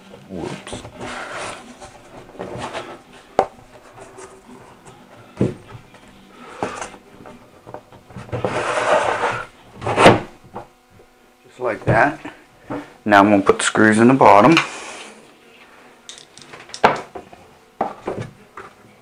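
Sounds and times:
shelf scraping rub: 0.3s - 4.8s, 8.2s - 10.3s.

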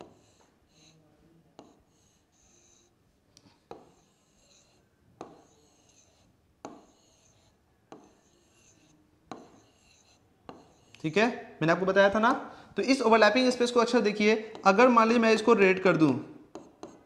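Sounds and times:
marker squeaking on glass: 0.0s - 1.0s, 1.6s - 2.9s, 3.7s - 11.1s.

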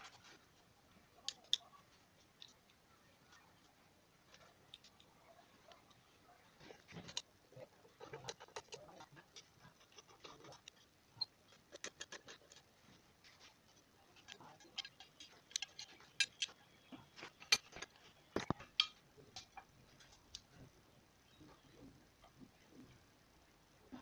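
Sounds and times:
plastic parts clicking: 14.2s - 16.6s.

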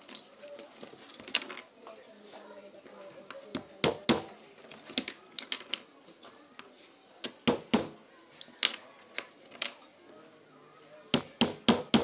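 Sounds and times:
hammer tapping on plastic caps: 3.5s - 4.3s, 7.2s - 8.0s, 11.2s - 12.0s.

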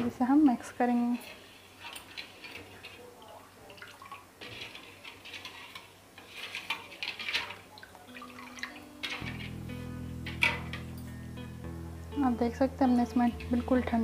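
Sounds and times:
ladle stirring liquid in pot: 0.8s - 9.6s.

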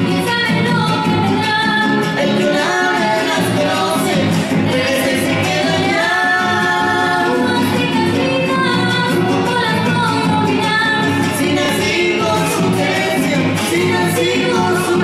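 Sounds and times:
strummed guitars: 0.0s - 15.0s
woman singing: 0.0s - 15.0s
man singing: 11.2s - 15.0s.

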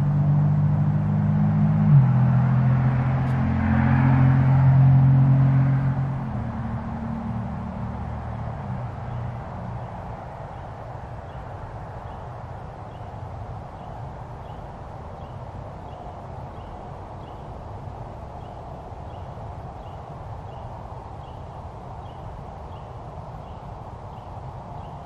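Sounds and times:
vehicle passing: 0.0s - 12.2s
low outdoor rumble: 0.0s - 25.0s.

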